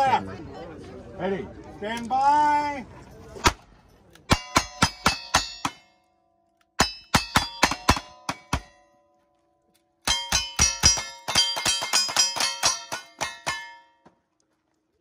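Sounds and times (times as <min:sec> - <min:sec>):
metallic clang of steel targets: 0:04.3 - 0:06.0, 0:06.8 - 0:09.0, 0:10.0 - 0:14.1.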